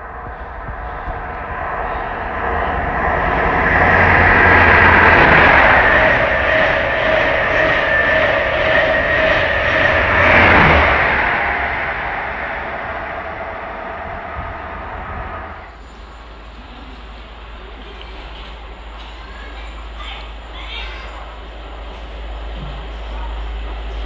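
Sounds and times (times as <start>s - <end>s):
train high whine: 0.0s - 24.0s
wheels rushing on rails: 0.0s - 24.0s.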